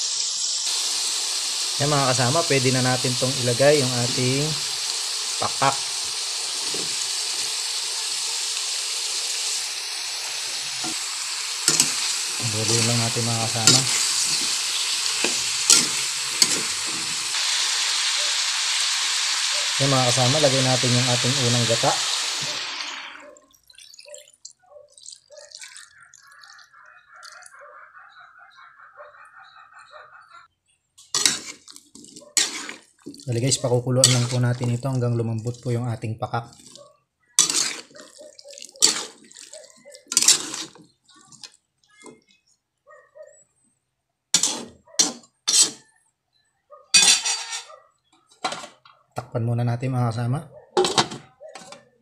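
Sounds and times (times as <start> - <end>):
food sizzling in oil: 0.0 - 26.8, 31.1 - 35.8, 37.4 - 41.5, 44.4 - 45.8, 47.0 - 47.6
liquid trickling into a pot: 22.6 - 27.6.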